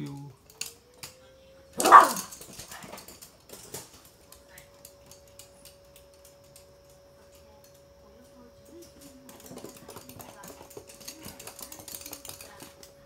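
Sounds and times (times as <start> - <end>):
faint steady hum: 0.0 - 13.0
dog claws clicking on hard floor: 8.8 - 13.0.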